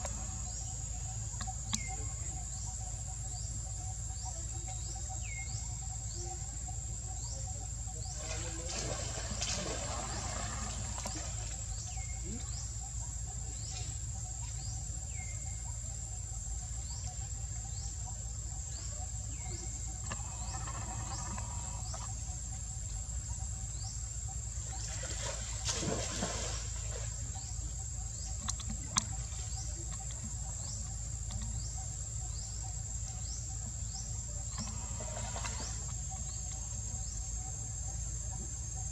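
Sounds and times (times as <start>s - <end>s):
insects droning: 0.0s - 38.9s
falling insect chirp: 18.8s - 38.9s.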